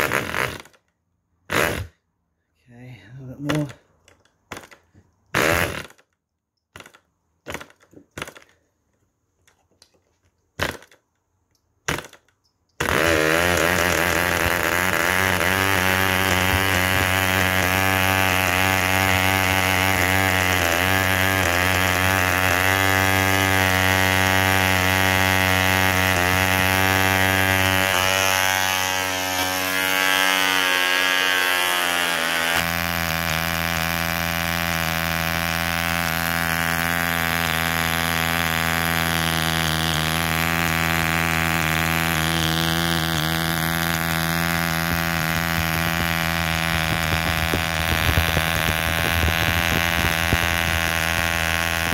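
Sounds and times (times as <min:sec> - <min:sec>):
model engine buzzing: 0:00.0 - 0:00.8, 0:05.3 - 0:06.1, 0:11.9 - 0:51.9
model engine sharp pops: 0:10.6 - 0:11.2.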